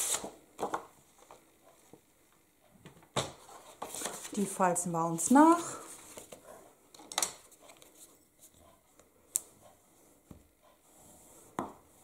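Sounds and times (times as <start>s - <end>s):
paper rustling: 3.4s - 4.6s.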